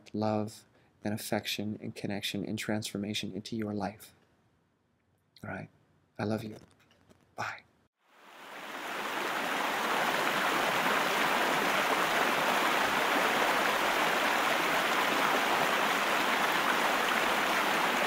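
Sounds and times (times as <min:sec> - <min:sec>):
waterfall rushing: 0:08.2 - 0:18.0.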